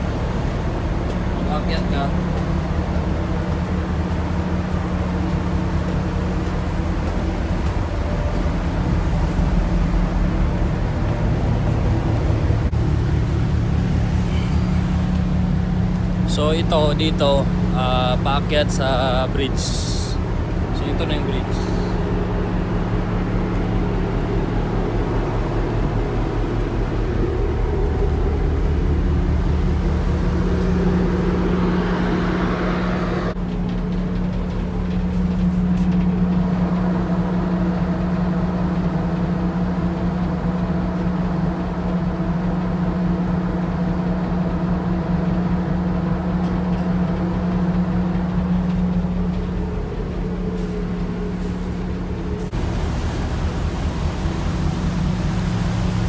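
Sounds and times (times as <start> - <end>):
rushing wind and water: 0.0 - 56.0
ship engine drone: 0.0 - 56.0.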